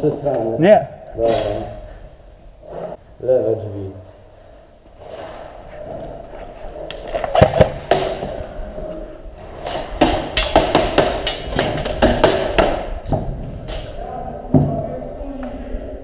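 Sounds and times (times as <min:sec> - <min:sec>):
airsoft guns firing: 0:09.6 - 0:13.0.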